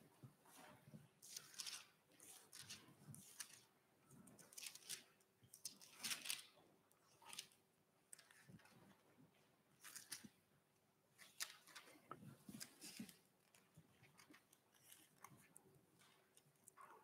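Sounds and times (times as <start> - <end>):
paper pages rustling: 1.2 - 3.7, 4.3 - 6.5, 9.8 - 10.3, 11.2 - 17.0.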